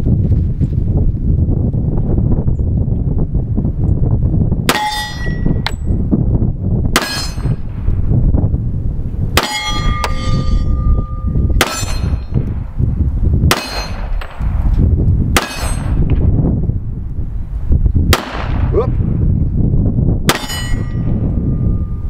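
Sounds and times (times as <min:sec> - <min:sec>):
wind buffeting microphone: 0:00.0 - 0:22.0
steel plate targets clanging: 0:04.7 - 0:05.9, 0:07.0 - 0:07.6, 0:09.4 - 0:12.4, 0:13.5 - 0:14.4, 0:15.4 - 0:16.0, 0:20.3 - 0:21.2
pistol shots: 0:11.6 - 0:12.3, 0:13.5 - 0:14.4, 0:15.4 - 0:16.0, 0:18.1 - 0:18.7, 0:20.3 - 0:20.6.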